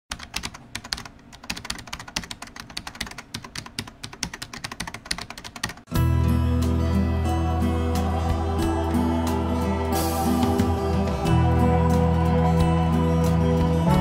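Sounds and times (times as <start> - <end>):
keyboard typing clicks: 0.1 - 5.9
calm instrumental music: 5.9 - 14.0.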